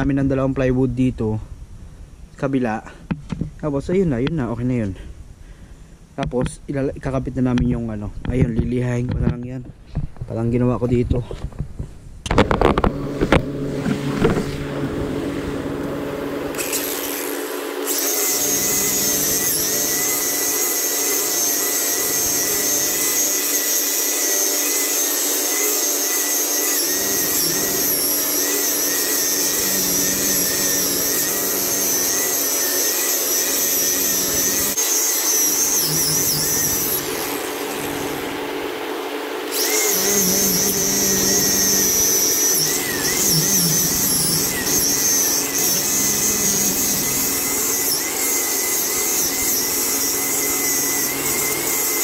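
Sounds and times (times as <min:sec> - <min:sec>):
angle grinder sanding: 0:13.0 - 0:52.0.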